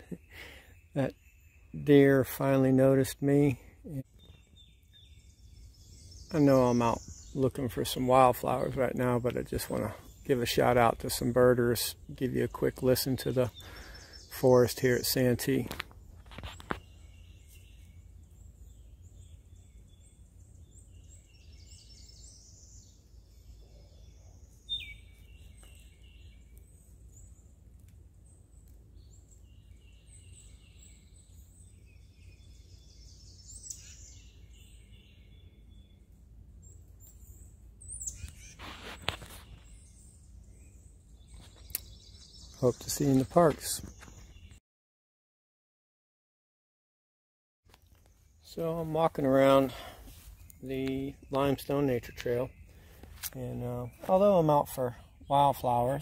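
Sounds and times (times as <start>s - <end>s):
songbirds singing: 0.0s - 44.6s, 47.7s - 56.0s.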